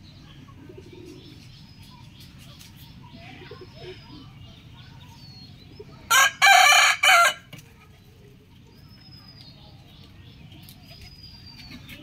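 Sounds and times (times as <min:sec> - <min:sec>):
rooster crowing: 0:06.1 - 0:07.5.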